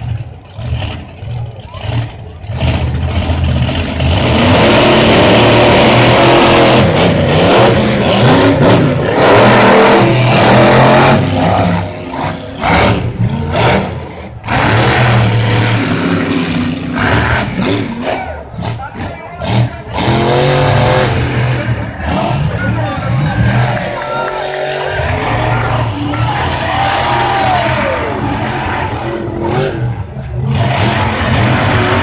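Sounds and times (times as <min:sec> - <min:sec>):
truck engines revving: 0:00.0 - 0:32.0.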